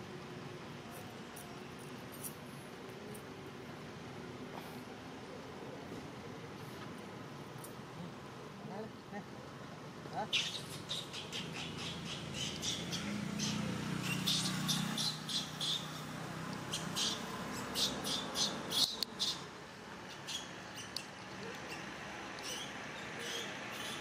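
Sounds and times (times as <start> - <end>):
high-pitched chirping calls: 10.3 - 24.0.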